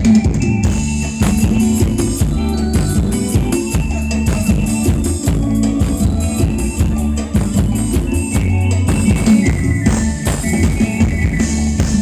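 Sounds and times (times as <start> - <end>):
band music over loudspeakers: 0.0 - 12.0
drum kit beat: 0.0 - 12.0
heavy bass line: 0.0 - 12.0.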